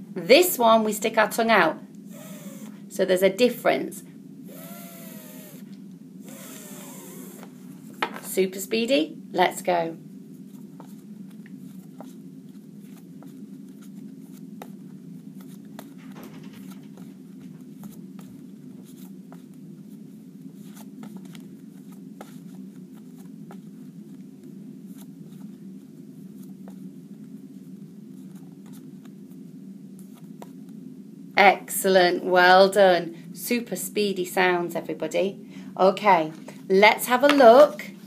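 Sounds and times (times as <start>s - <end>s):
low room hum: 0.0s - 38.0s
paper flashcards tapping and rustling: 15.4s - 19.6s.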